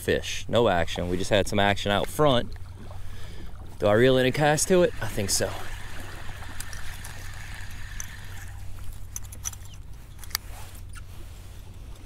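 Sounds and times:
steady low hum: 0.0s - 12.0s
water lapping: 0.1s - 12.0s
reel clicks: 4.1s - 11.1s
fishing reel winding: 4.4s - 10.4s.

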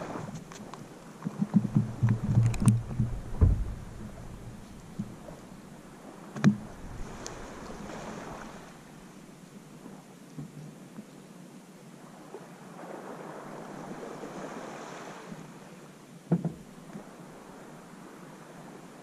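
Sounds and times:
small waves on beach: 0.0s - 19.0s
wind: 0.0s - 19.0s
low thumps: 1.5s - 5.6s.

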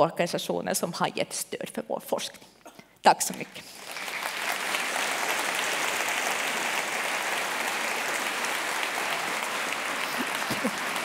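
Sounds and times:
audience applauding: 3.7s - 11.0s.

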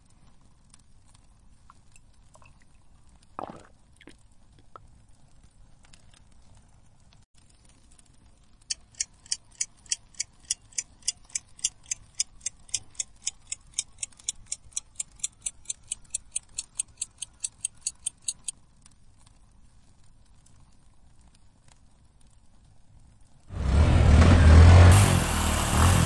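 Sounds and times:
clock ticking: 8.7s - 18.5s.

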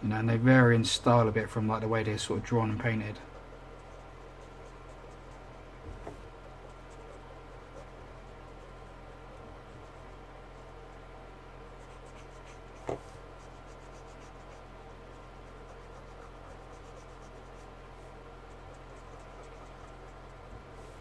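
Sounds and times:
steady low hum: 0.0s - 21.0s
marker scratching on paper: 3.3s - 8.7s, 11.7s - 21.0s.

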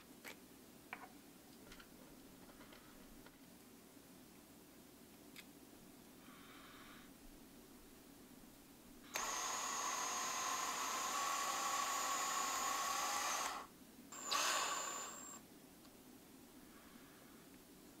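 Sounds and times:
cordless drill spinning: 9.1s - 15.4s.

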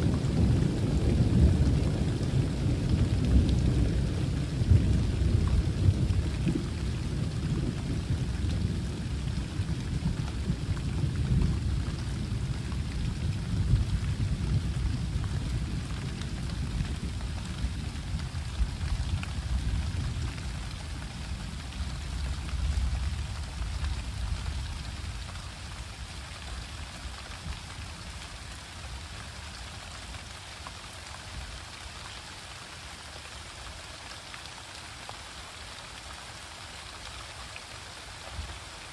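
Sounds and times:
rolling thunder: 0.0s - 25.2s
steady rain: 0.0s - 38.9s.

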